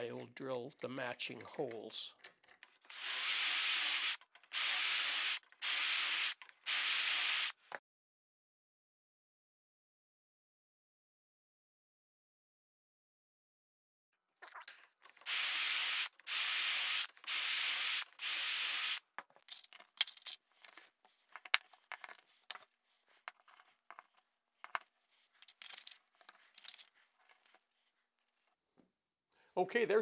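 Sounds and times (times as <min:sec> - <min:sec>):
wooden parts knocking and clicking: 0:01.3 - 0:02.9, 0:19.1 - 0:27.6
drill boring holes in wood: 0:02.9 - 0:07.6, 0:15.2 - 0:19.0.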